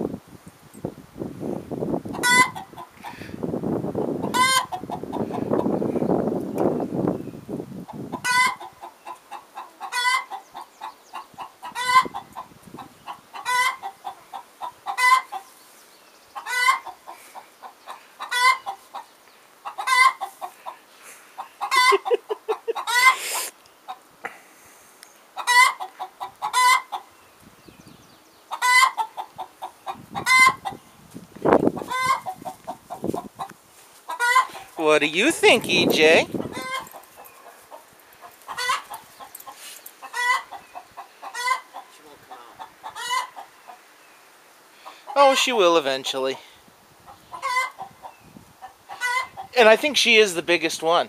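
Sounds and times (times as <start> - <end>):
hen clucking and squawking: 2.1 - 3.4, 4.2 - 6.0, 7.8 - 15.6, 16.3 - 24.1, 25.3 - 27.2, 28.5 - 30.9, 31.5 - 43.9, 44.8 - 49.7.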